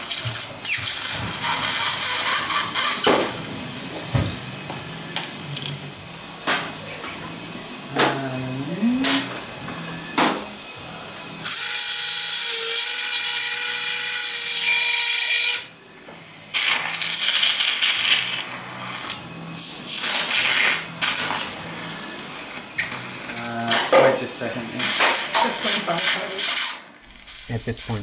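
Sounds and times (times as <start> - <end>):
surgical suction hissing: 24.8 - 28.0.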